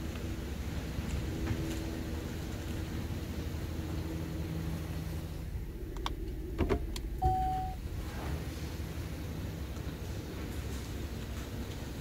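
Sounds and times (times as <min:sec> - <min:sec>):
car engine running low: 0:00.0 - 0:12.0
short single beep: 0:07.2 - 0:07.8.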